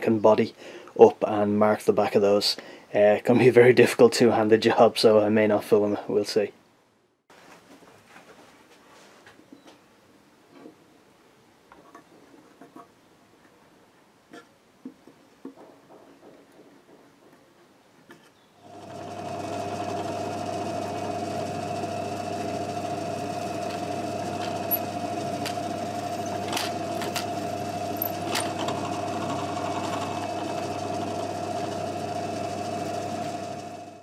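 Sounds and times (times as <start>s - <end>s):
drill press motor humming: 18.7s - 34.0s.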